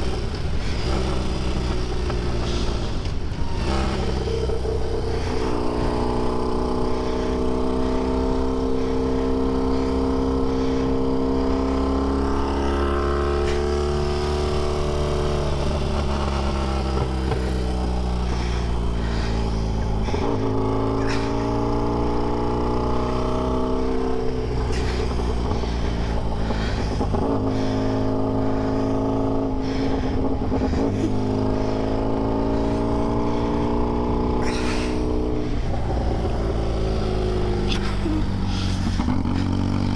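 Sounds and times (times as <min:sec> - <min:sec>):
racing engine revving: 0:00.0 - 0:39.9.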